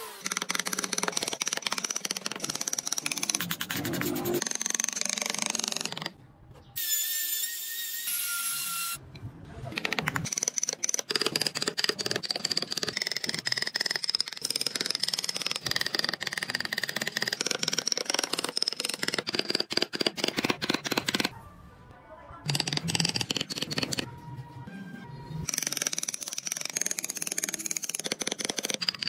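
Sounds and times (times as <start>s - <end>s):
carving tool scraping wood: 0.0s - 6.1s, 9.8s - 21.3s, 25.5s - 29.0s.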